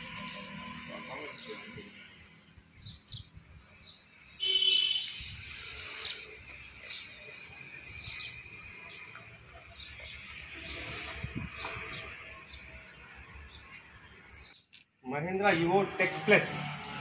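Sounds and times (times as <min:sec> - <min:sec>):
birds chirping: 0:00.2 - 0:14.8.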